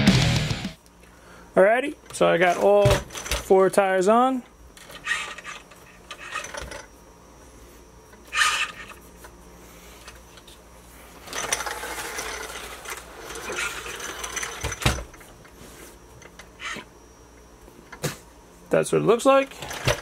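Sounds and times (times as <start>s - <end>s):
mechanical ratcheting and rubbing: 4.8s - 6.8s, 8.3s - 9.0s, 11.3s - 14.8s.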